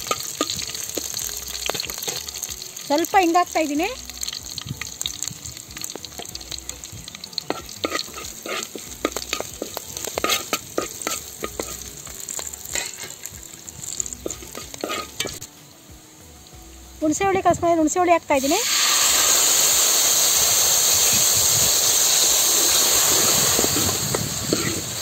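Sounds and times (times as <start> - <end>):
spoon stirring in pan: 0.0 - 2.6, 5.8 - 15.5
spices sizzling in hot oil: 0.0 - 25.0.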